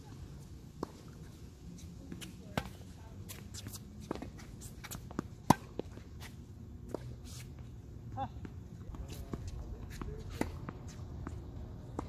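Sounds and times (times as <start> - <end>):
tennis ball bouncing: 0.7 - 1.4, 2.0 - 7.6, 8.3 - 12.0
racket hitting ball: 3.6 - 6.0.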